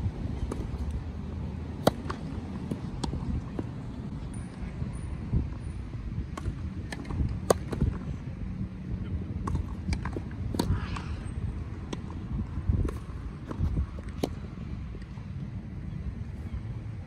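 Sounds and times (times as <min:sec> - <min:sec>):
tennis ball pops: 0:01.8 - 0:03.2
wind on microphone: 0:02.4 - 0:17.0.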